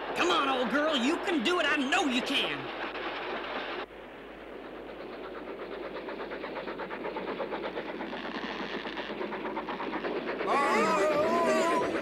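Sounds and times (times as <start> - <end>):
cartoon steam locomotive chuffing: 0.0 - 12.0.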